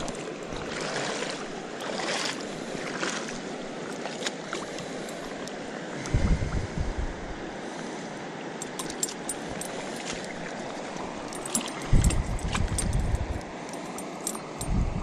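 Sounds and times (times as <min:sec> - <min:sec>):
small water splashes: 0:00.0 - 0:06.1, 0:08.4 - 0:14.6
shallow water lapping: 0:00.0 - 0:14.7
wind buffeting microphone: 0:06.0 - 0:07.5, 0:10.6 - 0:13.5, 0:14.5 - 0:15.0.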